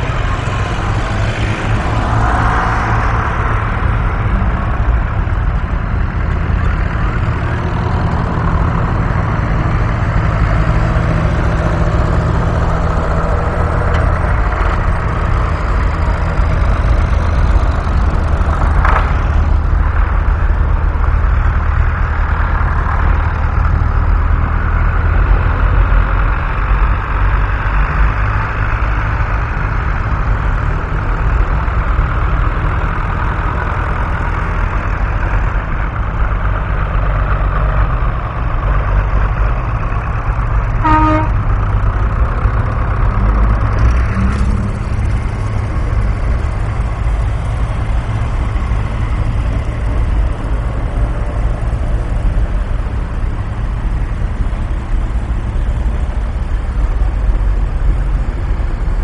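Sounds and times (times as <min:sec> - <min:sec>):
tractor diesel engines rumbling: 0:00.0 - 0:59.0
short horn toot: 0:40.8 - 0:41.4.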